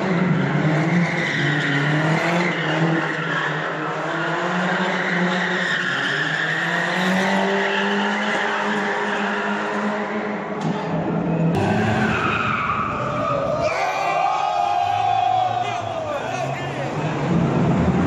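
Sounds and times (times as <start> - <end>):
car engine at high revs: 0.0 - 12.8
tires squealing and skidding: 0.0 - 18.0.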